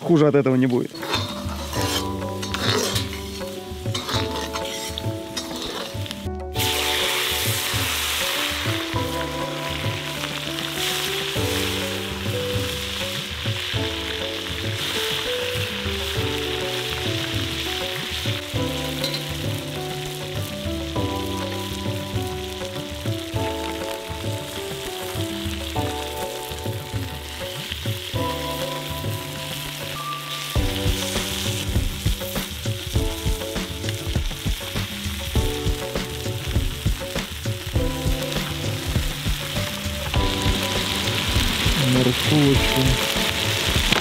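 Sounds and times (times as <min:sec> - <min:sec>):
background music with bass: 0:00.0 - 0:44.0
food sizzling in pot: 0:00.0 - 0:44.0.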